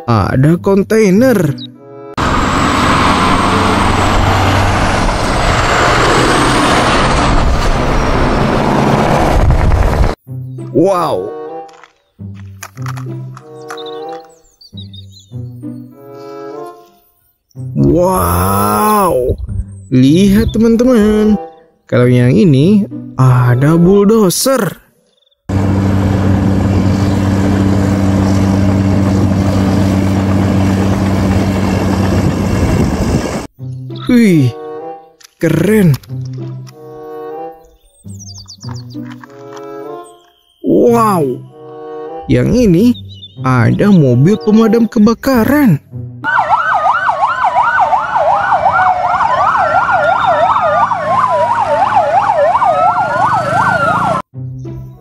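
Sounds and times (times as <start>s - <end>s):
fire engine sirens yelping and wailing: 2.2s - 9.3s, 46.2s - 54.3s
bulldozer diesel engine under load: 2.2s - 9.4s, 25.5s - 33.5s.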